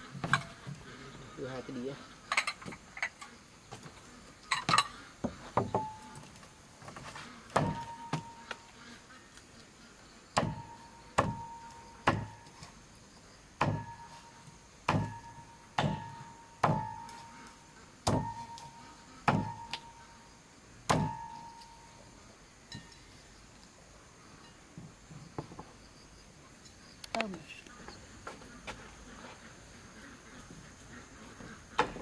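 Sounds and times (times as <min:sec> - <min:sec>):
cleaver chopping on wooden block: 0:07.5 - 0:08.4, 0:10.4 - 0:12.6, 0:13.6 - 0:14.2, 0:14.9 - 0:17.3, 0:18.0 - 0:19.9, 0:20.9 - 0:21.5.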